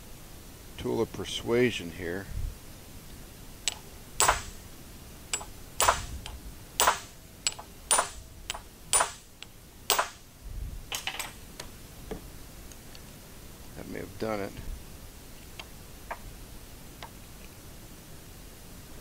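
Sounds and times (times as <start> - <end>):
hammer strikes on metal: 3.7 - 4.6, 5.4 - 9.3, 9.9 - 10.2.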